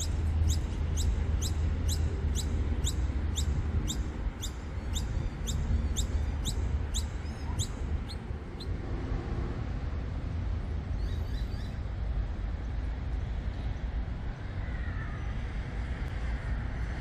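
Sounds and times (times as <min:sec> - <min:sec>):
small bird chirping: 0:00.0 - 0:08.8
steady low rumble: 0:00.0 - 0:17.0.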